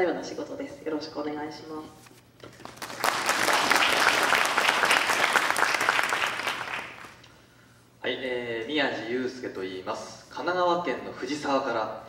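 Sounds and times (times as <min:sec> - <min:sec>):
audience applauding: 0:02.5 - 0:07.2.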